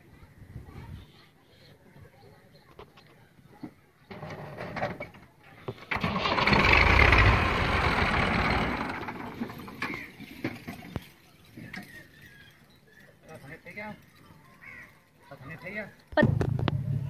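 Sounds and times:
tractor diesel engine starting: 0:05.7 - 0:10.7.

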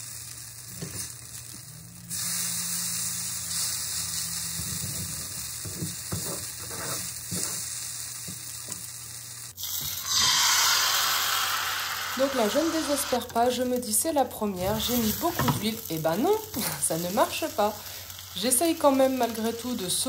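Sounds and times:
batter sizzling in frying pan: 0:00.0 - 0:20.0
plastic spatula scraping pan: 0:04.8 - 0:07.6.

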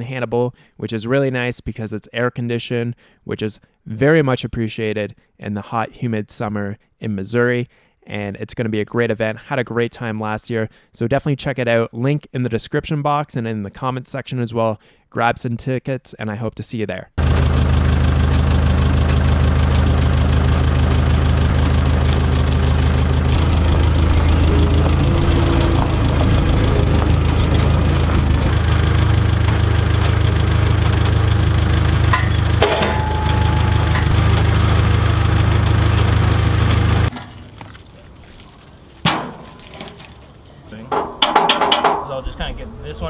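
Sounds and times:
forklift engine running: 0:17.2 - 0:37.6
metal clank: 0:31.6 - 0:35.6, 0:39.0 - 0:40.1, 0:40.9 - 0:42.7.

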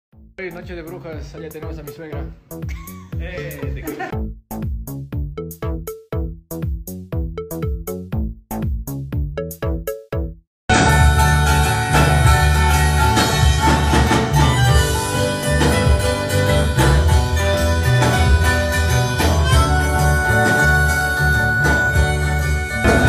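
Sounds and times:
steady bass line: 0:00.2 - 0:23.0
acoustic guitars strummed: 0:10.7 - 0:23.0.

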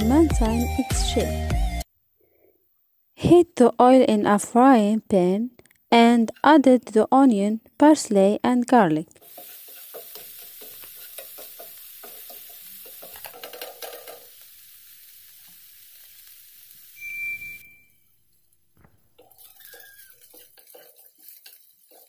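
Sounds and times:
wooden spatula scraping a pan: 0:09.2 - 0:14.4, 0:19.1 - 0:22.0
vegetables sizzling in hot oil: 0:09.2 - 0:17.8, 0:19.0 - 0:22.0
high squeal: 0:17.0 - 0:18.2.

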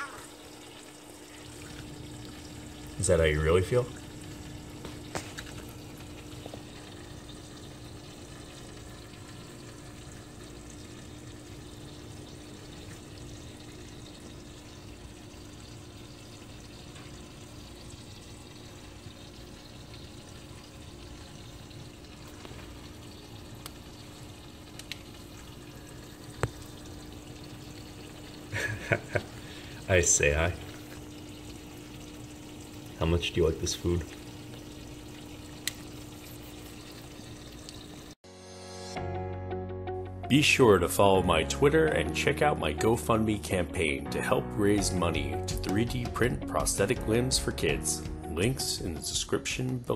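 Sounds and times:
pump hum: 0:00.0 - 0:38.2
water trickling: 0:00.0 - 0:38.2.

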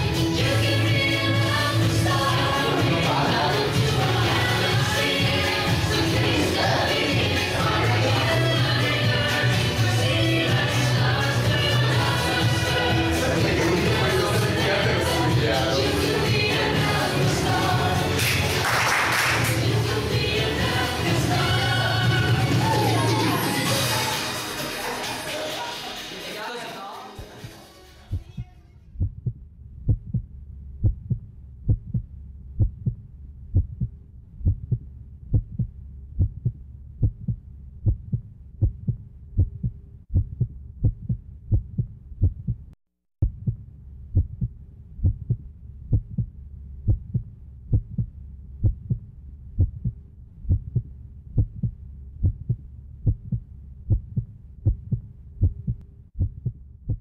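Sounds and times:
muffled low thumping beat: 0:28.1 - 0:57.0
low hum: 0:28.8 - 0:57.0.

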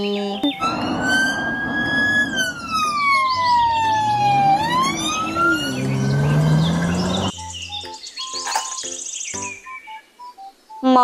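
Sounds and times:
car engine revving: 0:00.5 - 0:07.3
police siren wailing: 0:00.5 - 0:07.3.

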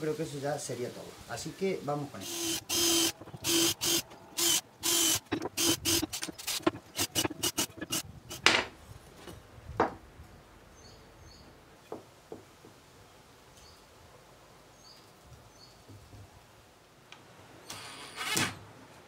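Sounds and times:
cordless drill boring into wood: 0:02.2 - 0:08.4.

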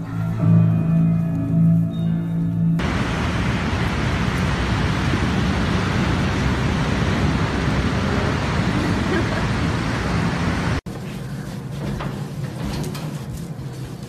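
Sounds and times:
loud rushing noise: 0:02.8 - 0:10.8.

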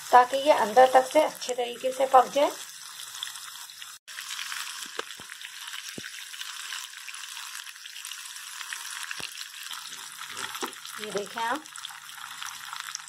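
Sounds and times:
fish deep-frying in oil: 0:00.0 - 0:13.0
oil popping: 0:04.2 - 0:13.0.

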